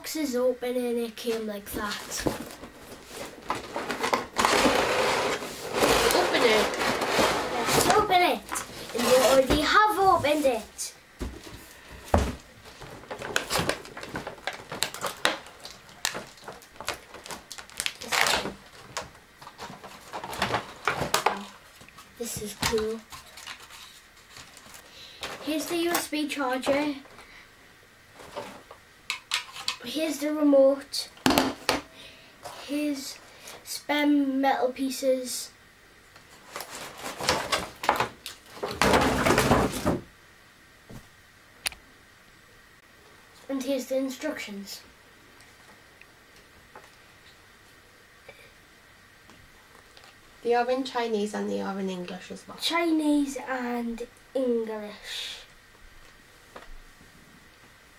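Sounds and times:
plastic packaging crackling: 12.6s - 24.9s, 36.3s - 39.8s.

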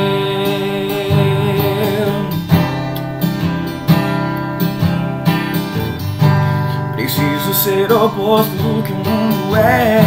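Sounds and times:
man singing: 0.0s - 2.8s, 6.8s - 10.0s
strummed acoustic guitar: 0.0s - 10.0s.

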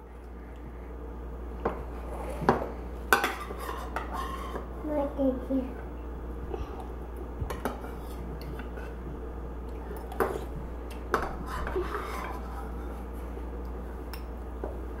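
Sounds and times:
spoon scraping in a bowl: 3.2s - 4.7s, 11.1s - 12.8s.

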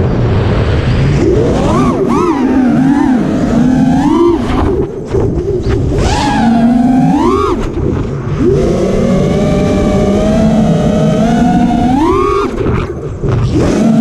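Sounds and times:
quadcopter motors whining: 1.2s - 14.0s.

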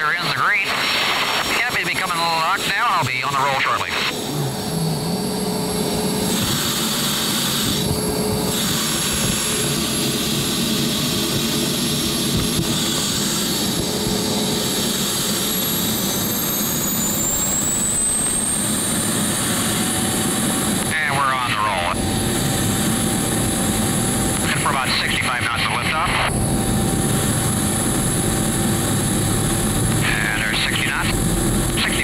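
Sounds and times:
jet engine roar: 0.0s - 32.0s
high whine rising in pitch: 3.4s - 20.9s, 26.2s - 32.0s.

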